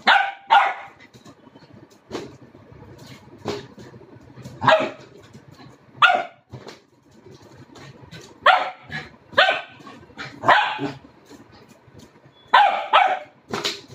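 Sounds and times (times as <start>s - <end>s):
puppy barking: 0.0s - 1.0s, 4.6s - 5.2s, 6.0s - 6.5s, 8.4s - 11.0s, 12.5s - 13.4s.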